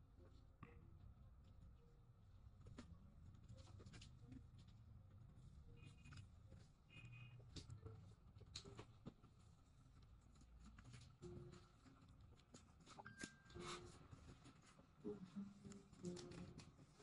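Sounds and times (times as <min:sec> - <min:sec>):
low room hum: 0:00.0 - 0:17.0
faint scratching: 0:02.7 - 0:17.0.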